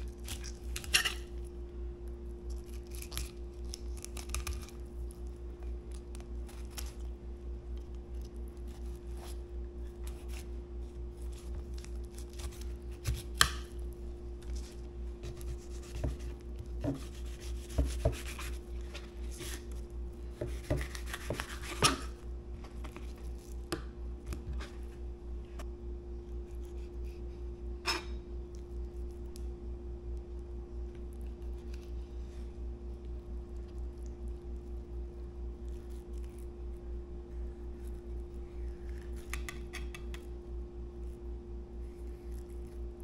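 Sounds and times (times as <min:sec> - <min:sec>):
knife slicing and scraping fish: 0:00.0 - 0:01.4, 0:08.6 - 0:13.8, 0:14.4 - 0:22.2
steady low hum: 0:00.0 - 0:43.0.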